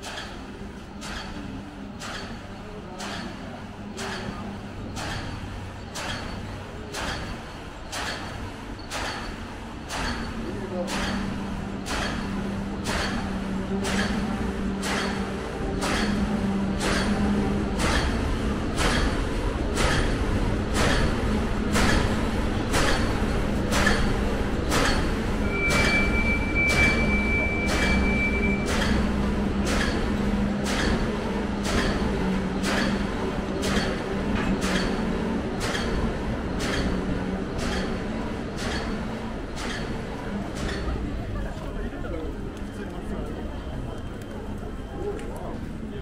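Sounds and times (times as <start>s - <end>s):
steady hum: 0.0s - 46.0s
train wheels clacking on rails: 0.0s - 46.0s
high steady beep: 25.4s - 28.7s.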